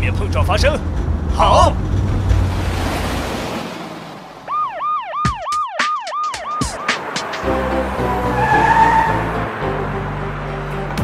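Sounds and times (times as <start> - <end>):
cartoon siren wail: 4.5 - 7.0.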